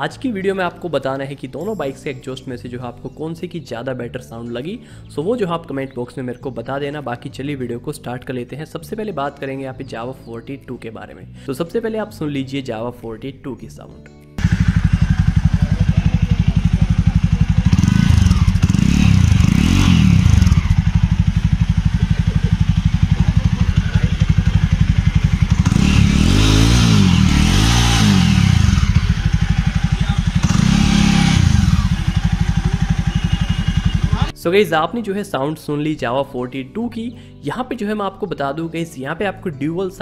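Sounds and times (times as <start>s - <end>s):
motorcycle engine idling and revving: 14.4s - 34.4s.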